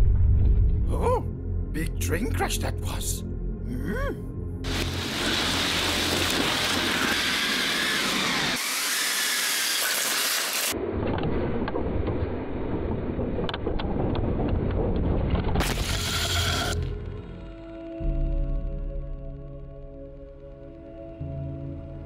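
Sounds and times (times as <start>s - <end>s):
toy train crash rumbling: 4.7s - 12.2s, 13.2s - 16.8s.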